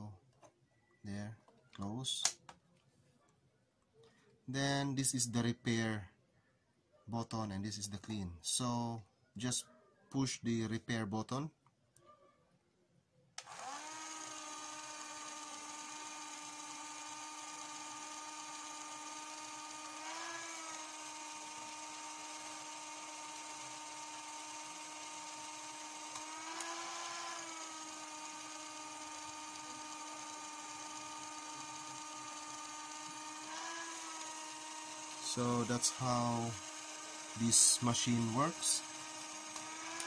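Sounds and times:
motor whining: 13.4 - 40.0.

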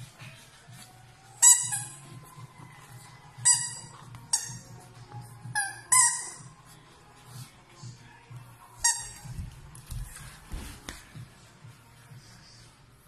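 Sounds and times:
squeaky toy ball squeaking: 1.4 - 2.0, 3.4 - 4.8, 5.5 - 6.5, 8.8 - 9.3.

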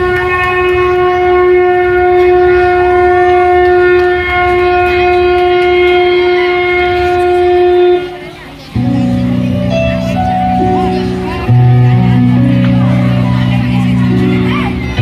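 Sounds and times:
wind instrument long note: 0.0 - 15.0
dance music: 8.8 - 15.0.

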